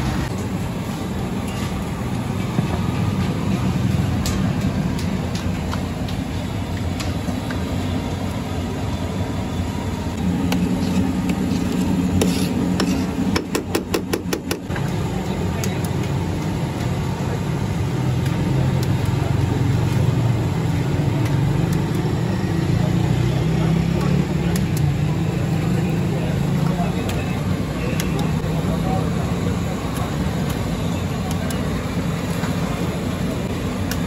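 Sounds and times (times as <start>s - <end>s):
road traffic rumble: 0.0s - 34.0s.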